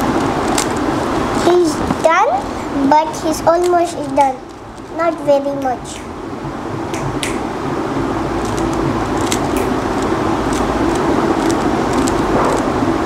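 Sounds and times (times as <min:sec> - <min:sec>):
plastic cube scraping rustle: 0:03.2 - 0:05.3, 0:08.4 - 0:12.7
cube layers clicking: 0:08.4 - 0:12.7.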